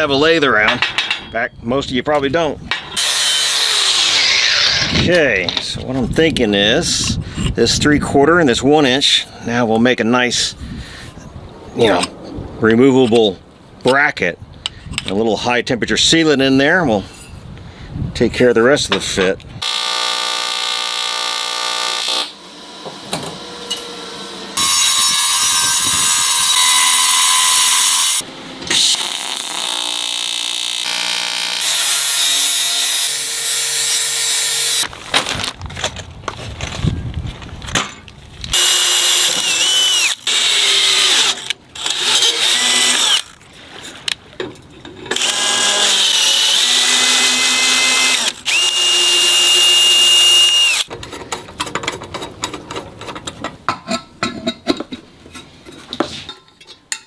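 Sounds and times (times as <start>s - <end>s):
power drill whining: 3.0s - 5.0s, 19.6s - 22.3s, 24.6s - 34.8s, 38.5s - 43.4s, 45.1s - 50.9s
welding arc buzzing: 19.6s - 22.4s, 24.6s - 34.8s.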